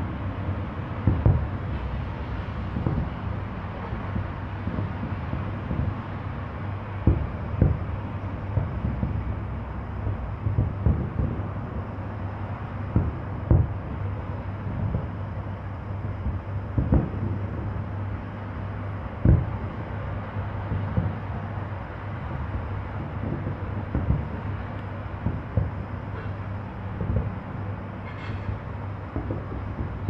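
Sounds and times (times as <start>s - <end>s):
steady low rumble: 0.0s - 30.0s
distant firework booms: 1.0s - 1.6s, 2.7s - 6.0s, 7.0s - 9.4s, 10.4s - 11.8s, 12.9s - 14.1s, 16.0s - 17.8s, 19.2s - 19.8s, 20.6s - 21.4s, 22.4s - 24.6s, 25.2s - 26.3s, 27.0s - 27.4s.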